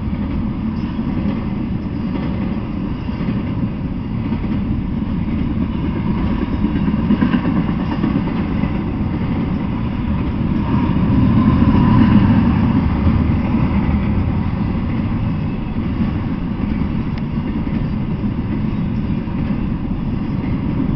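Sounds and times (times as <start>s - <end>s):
freight train rumbling on rails: 0.0s - 20.9s.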